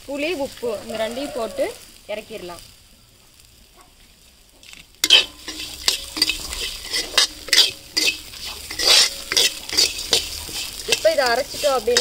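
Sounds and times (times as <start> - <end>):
spoon scraping an iron pan: 5.0 - 12.0.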